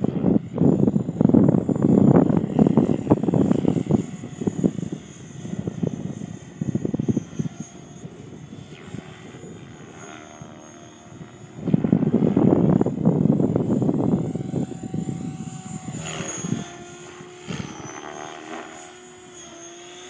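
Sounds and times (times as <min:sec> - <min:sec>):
wind buffeting microphone: 0:00.0 - 0:18.4
radio-controlled helicopter flying: 0:00.0 - 0:20.0.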